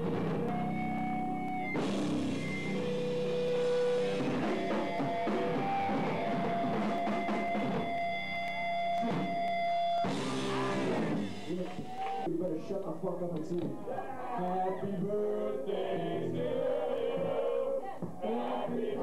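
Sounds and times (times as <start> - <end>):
metal band playing live: 0.0 - 11.9.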